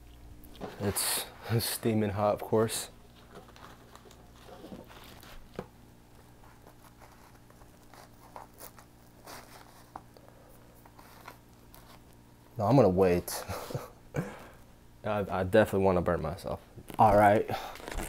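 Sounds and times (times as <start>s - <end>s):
paper and cardboard crinkling: 3.1s - 5.7s, 6.3s - 10.2s, 10.8s - 12.2s, 16.8s - 18.0s.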